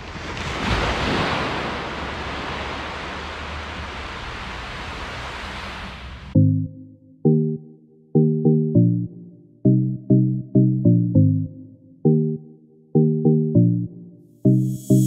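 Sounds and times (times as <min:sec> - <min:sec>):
surf washing onto beach: 0:00.0 - 0:06.4.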